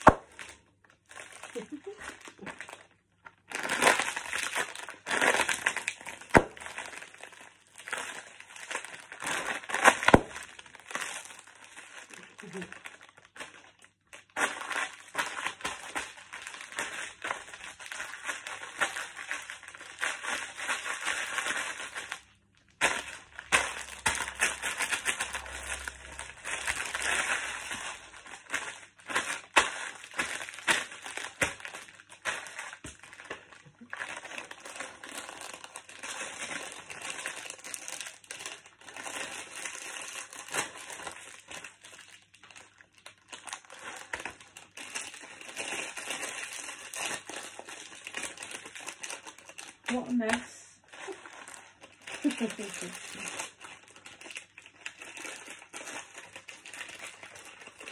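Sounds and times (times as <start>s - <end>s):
plastic bags crinkling: 0.0s - 57.9s
crisps crunching underfoot: 51.1s - 57.9s.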